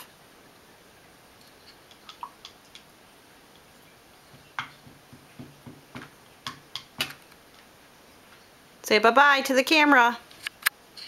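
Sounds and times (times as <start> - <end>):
paintbrush tapping plastic cup: 4.3 - 7.2.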